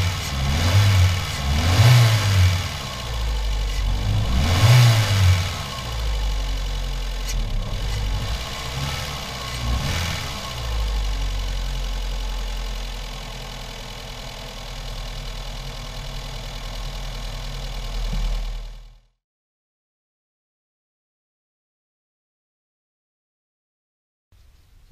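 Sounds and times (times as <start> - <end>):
car engine idling: 0.0 - 19.1.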